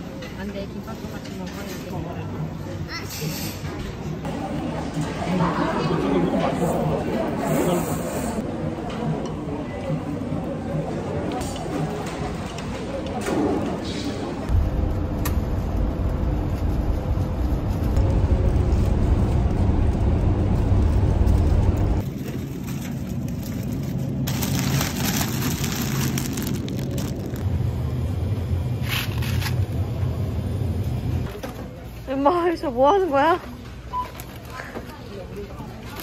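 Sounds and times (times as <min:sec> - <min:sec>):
car road and engine rumble: 0:14.5 - 0:22.0.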